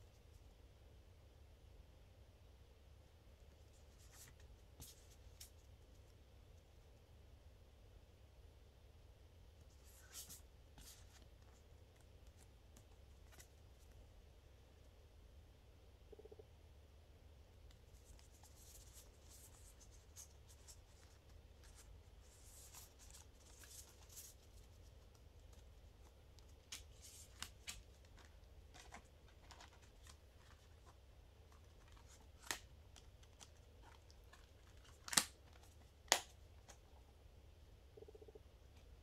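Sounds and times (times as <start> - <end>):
cards shuffled with papery rustle: 9.7 - 14.0, 17.9 - 36.8.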